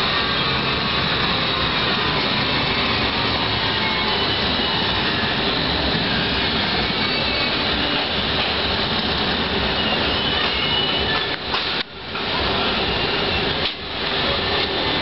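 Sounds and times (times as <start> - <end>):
faint high squeals: 2.2 - 5.5.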